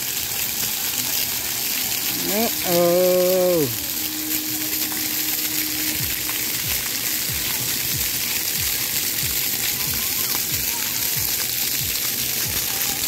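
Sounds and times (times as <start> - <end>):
fountain jets spraying water: 0.0 - 13.0
person calling out: 2.1 - 3.8.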